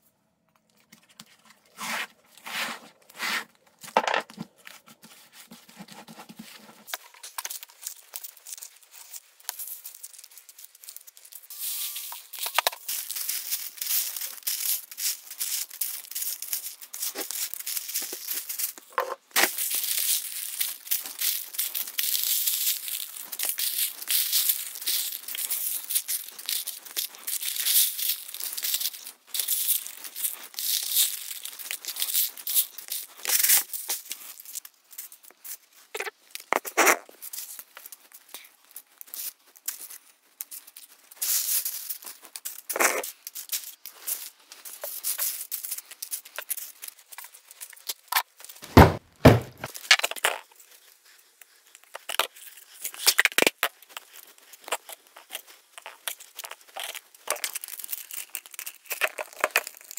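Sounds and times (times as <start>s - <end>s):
dry leaves crackling and rustling: 7.1s - 35.4s, 55.3s - 59.9s.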